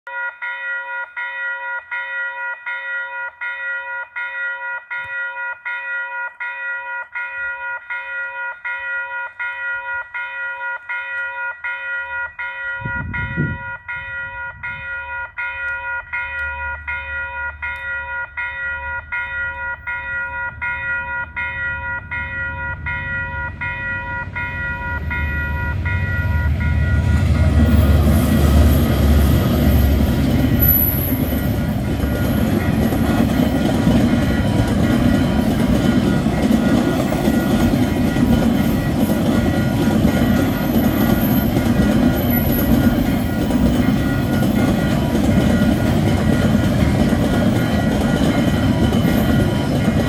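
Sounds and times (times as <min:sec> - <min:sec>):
level crossing bell ringing: 0:00.0 - 0:28.3, 0:29.2 - 0:50.0
train rumble: 0:11.6 - 0:50.0.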